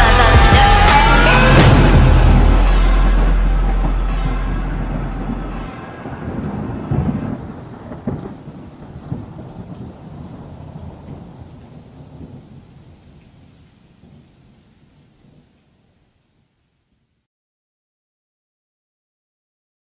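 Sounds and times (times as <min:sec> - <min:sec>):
thunder claps: 0:00.0 - 0:12.9
steady rain: 0:00.0 - 0:17.2.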